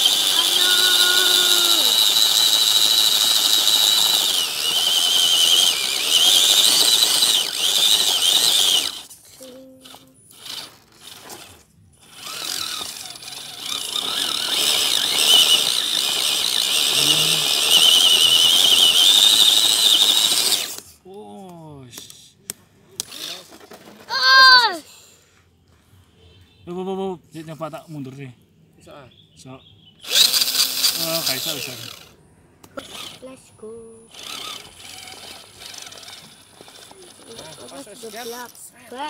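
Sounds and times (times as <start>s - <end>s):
electric motor and gearbox whining: 0.0s - 20.9s, 23.0s - 24.7s, 30.0s - 33.4s, 34.1s - 39.0s.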